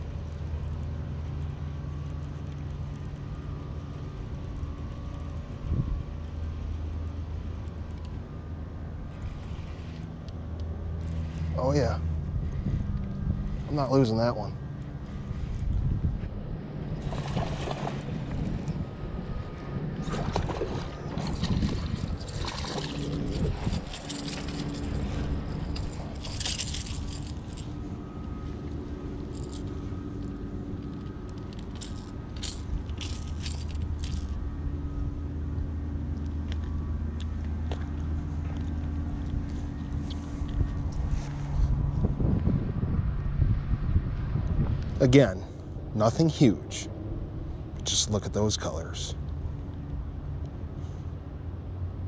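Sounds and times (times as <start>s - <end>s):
steady low hum: 0.0s - 52.0s
rustling and scraping: 9.1s - 10.2s, 20.1s - 34.4s, 37.7s - 42.1s.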